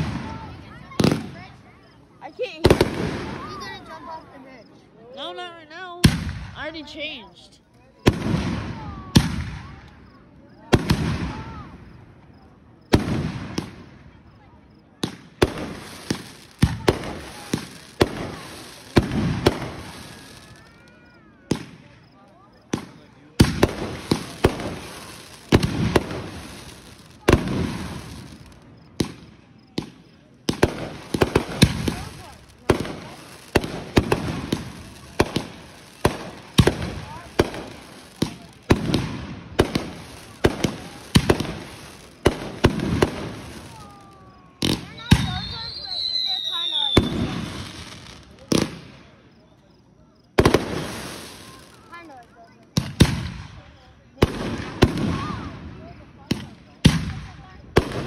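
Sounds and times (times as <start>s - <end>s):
fireworks bangs: 0.0s - 4.5s, 5.8s - 58.0s.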